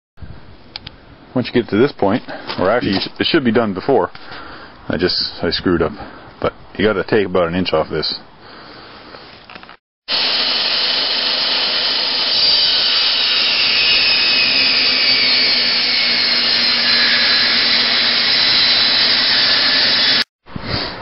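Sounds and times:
table saw cutting wood: 10.1s - 20.3s.

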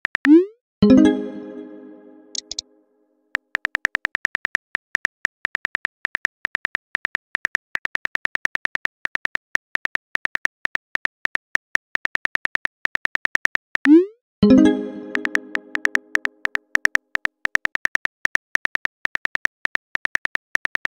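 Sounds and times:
phone keyboard key clicks: 2.4s - 2.6s, 15.8s - 20.9s.

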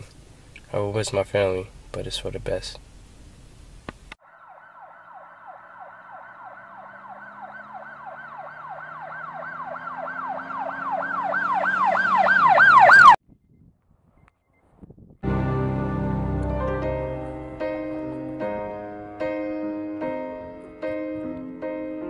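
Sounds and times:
emergency siren yelping: 4.2s - 13.2s.

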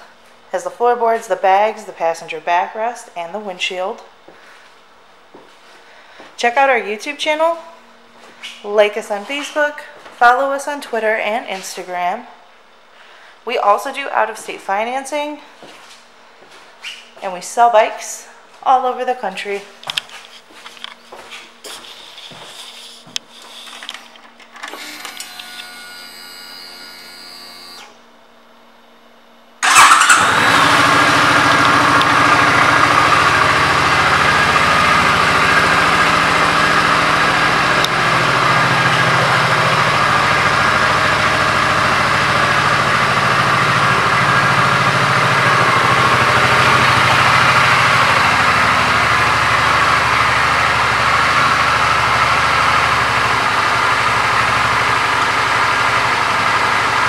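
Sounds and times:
motorcycle engine starting and idling: 29.6s - 57.0s.

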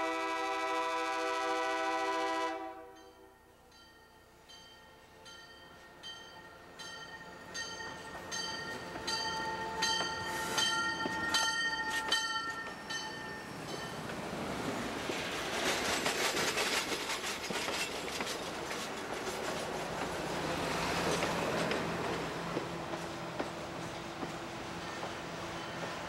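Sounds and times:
crossing bell ringing: 2.9s - 14.2s
railcar wheels rumbling past: 4.4s - 26.0s.

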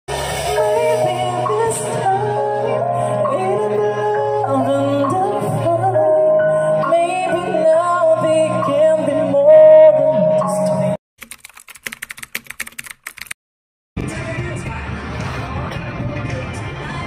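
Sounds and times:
man singing with music: 0.4s - 11.0s, 14.0s - 17.0s
keyboard typing clicks: 11.2s - 13.4s
crowd noise: 14.0s - 17.0s.

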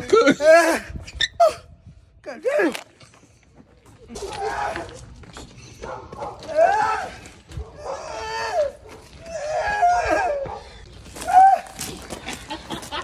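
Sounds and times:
man wailing and groaning: 0.0s - 1.7s, 7.8s - 10.5s.

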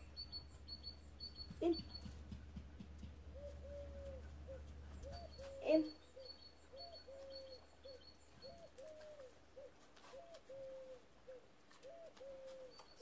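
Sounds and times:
small bird chirps: 0.0s - 2.4s, 3.4s - 10.9s
dove cooing softly: 3.3s - 12.8s.

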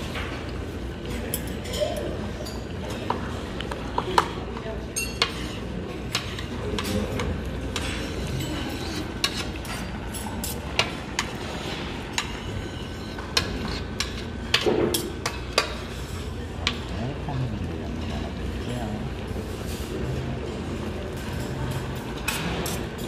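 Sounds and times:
utensils scraping ceramic platter: 5.1s - 16.3s.

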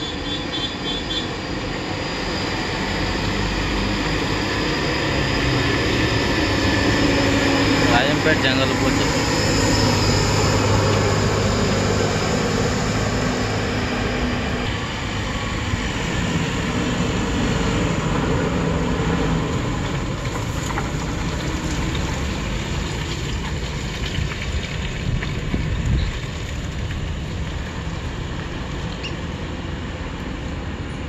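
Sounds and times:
lorry diesel engine passing: 0.0s - 24.7s
tyre and road noise: 0.0s - 31.0s.

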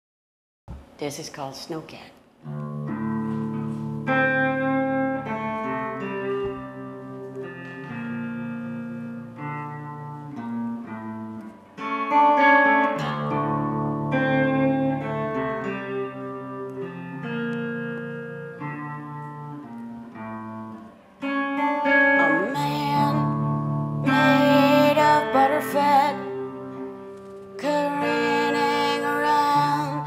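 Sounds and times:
electric guitar chords: 2.4s - 30.0s
woman singing: 22.1s - 26.8s, 27.6s - 30.0s.

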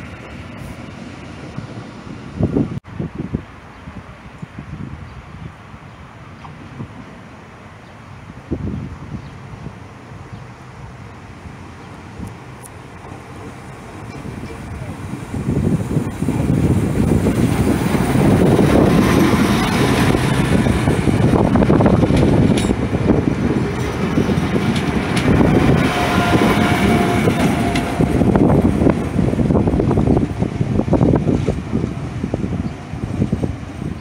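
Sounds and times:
diesel train engine running: 9.7s - 34.0s
train wheels rolling on rails: 10.8s - 34.0s.

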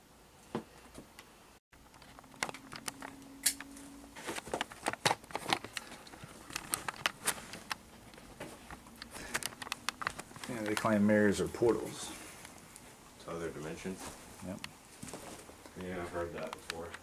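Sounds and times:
debris rustling and crackling: 4.1s - 13.0s.

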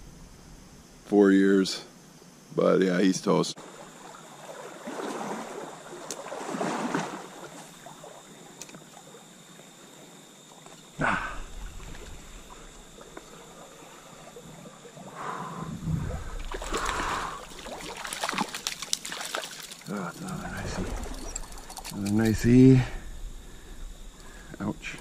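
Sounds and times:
stream water trickling: 3.6s - 15.1s, 16.3s - 22.6s.

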